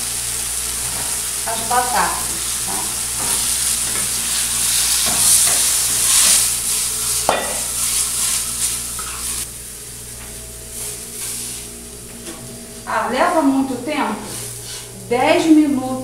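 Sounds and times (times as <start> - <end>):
sauce sizzling in a frying pan: 0.0 - 9.5
spatula scraping a pan: 2.7 - 9.4, 14.2 - 15.0.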